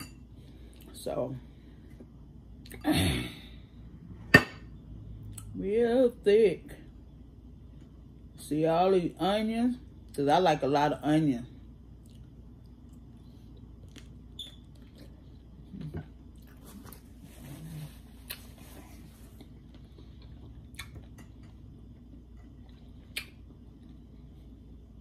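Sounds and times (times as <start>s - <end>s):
chewing food: 12.0s - 17.1s, 18.2s - 24.3s.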